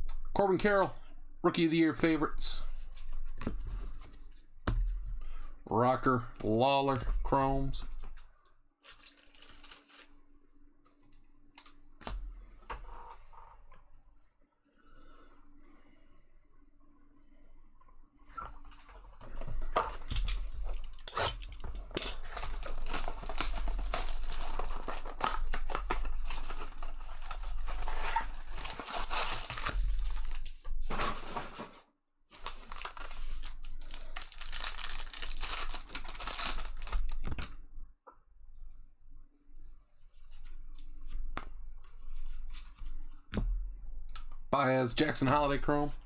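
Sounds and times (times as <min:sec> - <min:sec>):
wrappers tearing and crinkling: 0:08.8 - 0:10.2, 0:19.9 - 0:30.6, 0:32.3 - 0:37.6.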